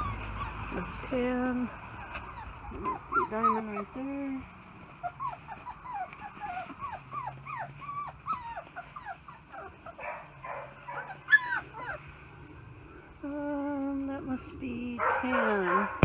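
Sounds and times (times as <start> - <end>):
puppies whimpering and yipping: 0.0 - 12.3.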